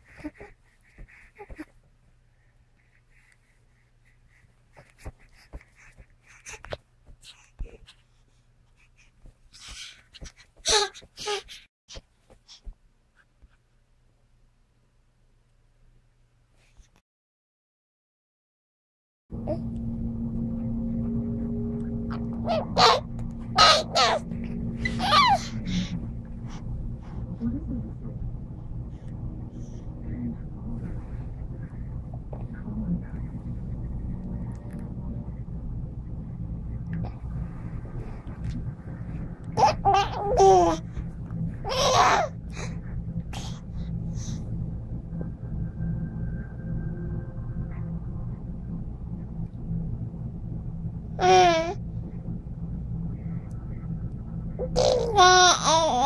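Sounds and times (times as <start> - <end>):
baby babbling and cooing: 10.7 - 11.6, 22.5 - 23.0, 23.6 - 24.2, 24.8 - 25.9, 39.6 - 40.8, 41.7 - 42.4, 51.2 - 51.8, 54.6 - 56.0
steady background hum: 19.3 - 56.0
infant squealing and cooing: 23.6 - 24.2, 24.9 - 25.6, 41.7 - 42.4.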